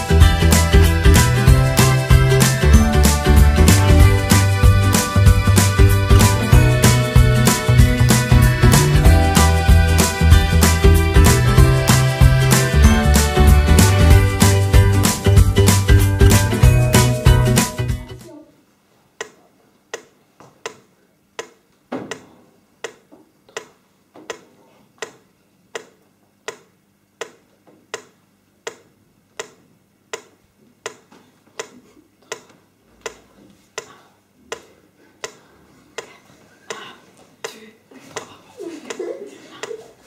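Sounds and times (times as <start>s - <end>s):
sharp steady clicks: 25.0s - 31.0s.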